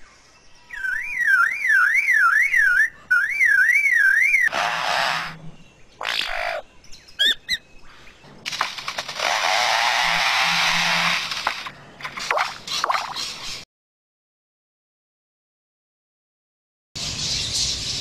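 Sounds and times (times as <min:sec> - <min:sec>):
bird siren-like whistle: 0:00.7 - 0:04.5
bird noisy bursts and chirps: 0:00.7 - 0:07.6, 0:17.0 - 0:18.0
bird chainsaw-like rasping: 0:04.5 - 0:06.5, 0:08.5 - 0:13.6.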